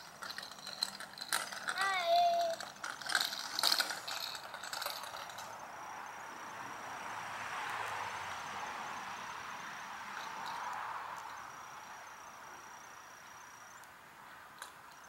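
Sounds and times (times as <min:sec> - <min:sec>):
bicycle rattling on asphalt: 0:00.0 - 0:06.6, 0:10.0 - 0:13.8, 0:14.4 - 0:15.0.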